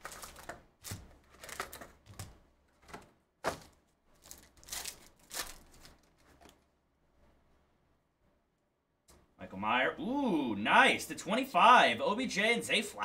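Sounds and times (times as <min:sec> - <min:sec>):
foil wrapper crinkling and tearing: 0:00.0 - 0:02.3, 0:03.5 - 0:06.6.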